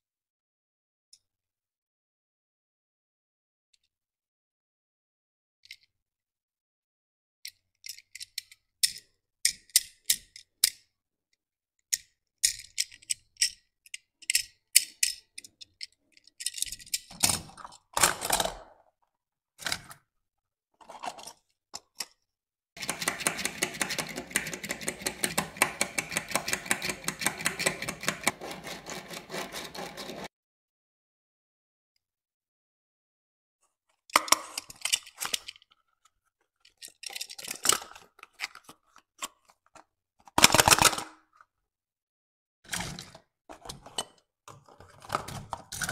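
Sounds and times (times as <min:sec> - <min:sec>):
toy car clicks and taps: 0:07.5 - 0:10.8, 0:11.9 - 0:17.2, 0:22.8 - 0:30.3.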